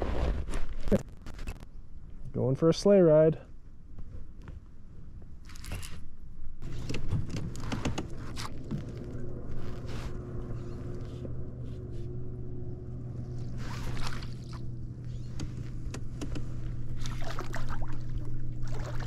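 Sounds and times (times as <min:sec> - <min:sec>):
water splashing: 0:13.2 - 0:14.9, 0:16.9 - 0:19.0.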